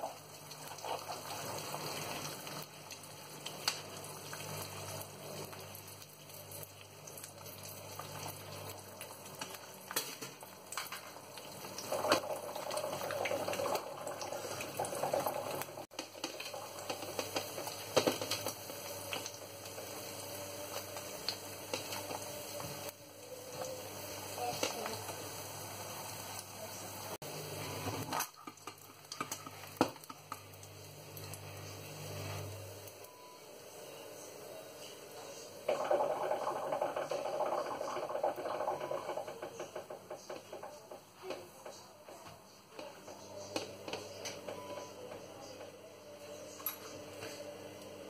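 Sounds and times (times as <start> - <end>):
oil popping and crackling: 0.0 - 31.6, 35.7 - 42.2
eggs sizzling in oil: 0.0 - 48.0.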